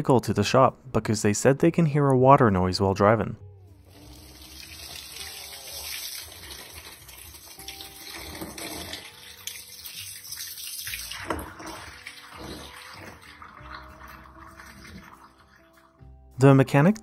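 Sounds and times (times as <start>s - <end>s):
water gushing and splashing on floor: 3.9s - 15.9s.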